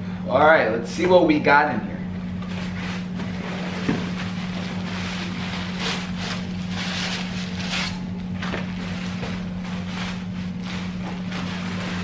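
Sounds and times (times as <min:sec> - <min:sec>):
steady low hum: 0:00.0 - 0:12.0
gift bag rustling and crinkling: 0:02.5 - 0:08.0.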